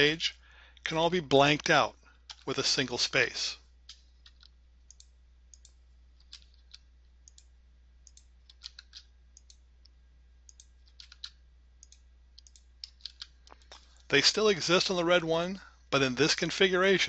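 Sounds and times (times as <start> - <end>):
keyboard and mouse clicks: 2.3 - 2.5, 3.9 - 9.6, 10.5 - 14.1.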